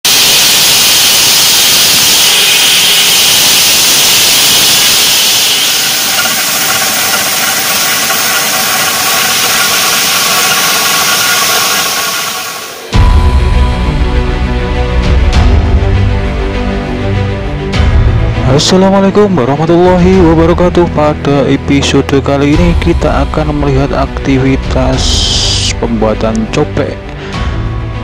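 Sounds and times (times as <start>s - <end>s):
stone saw grinding: 0.1s - 13.0s
machine hum with held tones: 0.1s - 16.5s.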